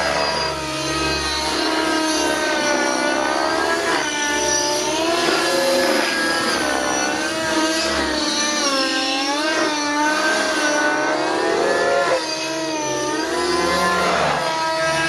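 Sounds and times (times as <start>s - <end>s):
model helicopter engine and rotor whine: 0.0s - 15.0s.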